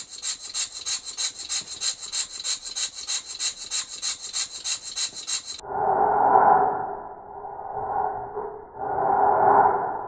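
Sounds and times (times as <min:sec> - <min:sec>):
model steam engine chuffing: 0:00.0 - 0:05.6.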